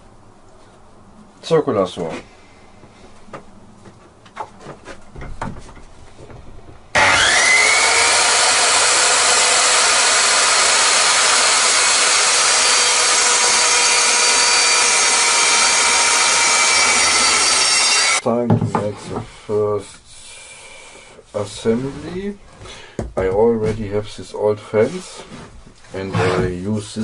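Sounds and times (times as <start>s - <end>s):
circular saw cutting wood: 6.9s - 18.2s, 26.0s - 26.6s.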